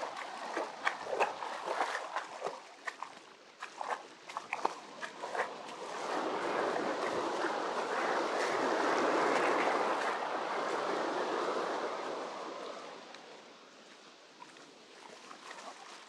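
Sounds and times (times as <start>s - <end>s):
wave breaking on beach: 0.0s - 2.6s, 4.4s - 15.8s.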